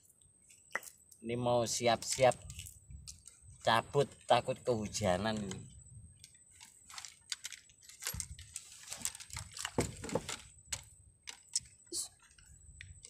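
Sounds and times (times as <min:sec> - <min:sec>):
fishing gear rustling and clicking: 0:02.0 - 0:13.0
soft knocks: 0:09.8 - 0:10.3.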